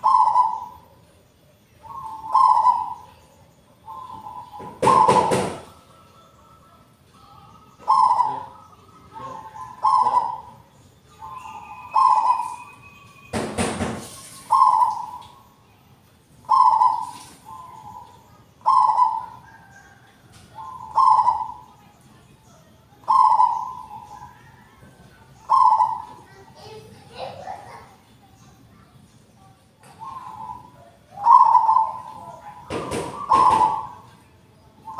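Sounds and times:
dove cooing: 0:00.0 - 0:01.0, 0:01.8 - 0:03.2, 0:03.8 - 0:12.8, 0:14.4 - 0:15.5, 0:16.4 - 0:21.8, 0:23.0 - 0:26.5, 0:29.8 - 0:34.9.

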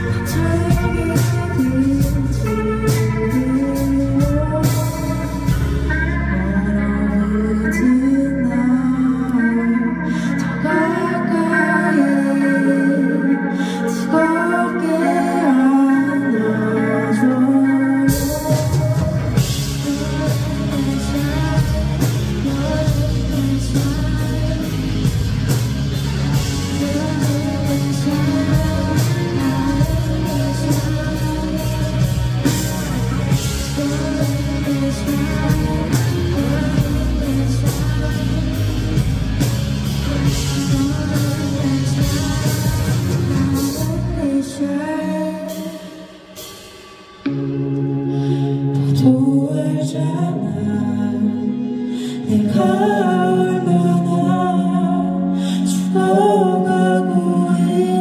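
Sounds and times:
drums: 0:00.0 - 0:58.0
guitar: 0:00.0 - 0:58.0
person singing: 0:00.0 - 0:58.0.

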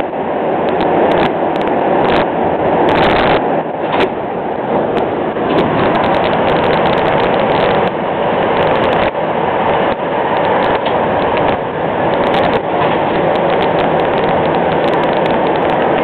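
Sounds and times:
subway train running: 0:00.0 - 0:16.0.

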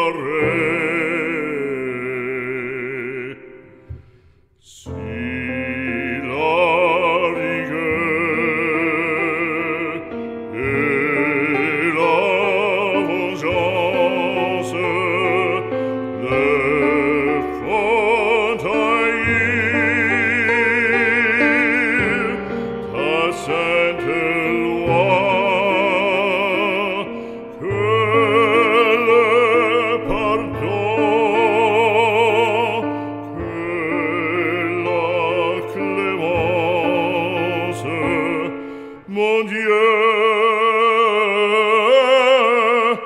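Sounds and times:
sustained accompaniment: 0:00.0 - 0:40.1
operatic singing: 0:00.0 - 0:43.0.

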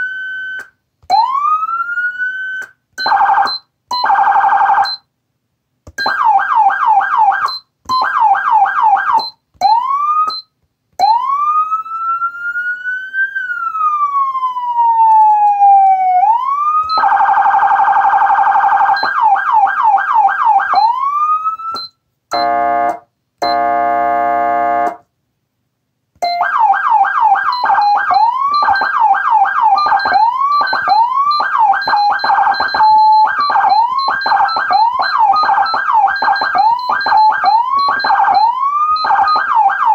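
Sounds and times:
electronic siren yelp and wail: 0:00.0 - 0:05.0, 0:06.0 - 0:10.4, 0:11.0 - 0:25.0, 0:26.2 - 0:39.9
electronic air horn blasts: 0:22.3 - 0:25.0.

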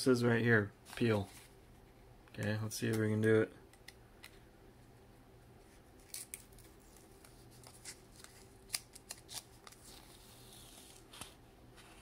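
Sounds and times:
paper sticker peeling crackles: 0:06.0 - 0:12.0.

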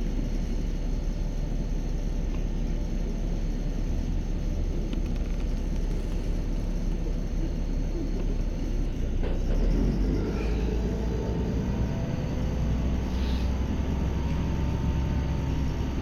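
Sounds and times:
bus engine rumble: 0:00.0 - 0:16.0.

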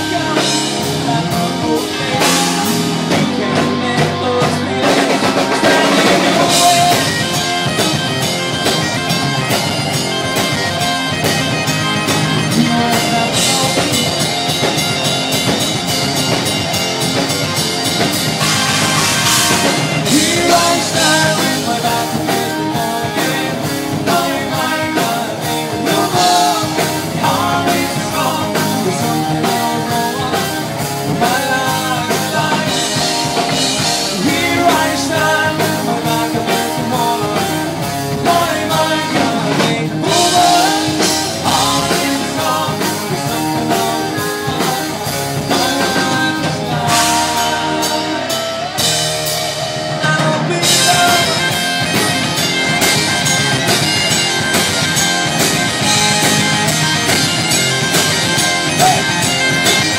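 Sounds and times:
person singing: 0:00.0 - 0:09.0, 0:11.2 - 0:14.8, 0:18.4 - 0:52.1, 0:58.6 - 0:59.9
rock band playing live: 0:00.0 - 0:59.9.

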